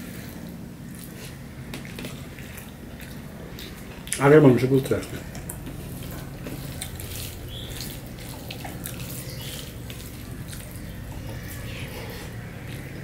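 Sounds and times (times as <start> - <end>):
steady low hum: 0.0 - 13.0
fingers squelching food: 0.9 - 13.0.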